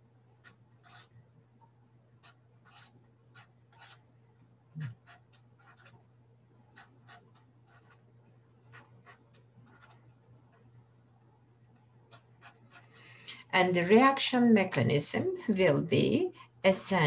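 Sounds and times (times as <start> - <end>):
faint steady hum: 0.0 - 17.0
marker scratching on whiteboard: 0.4 - 1.1, 2.2 - 4.0, 4.8 - 6.0, 6.6 - 10.7, 11.8 - 13.0.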